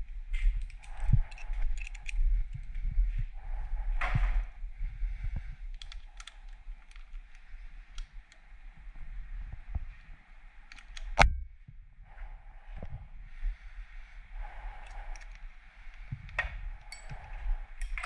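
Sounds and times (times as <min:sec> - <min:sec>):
hand tools clicking and rattling: 0:00.6 - 0:02.2.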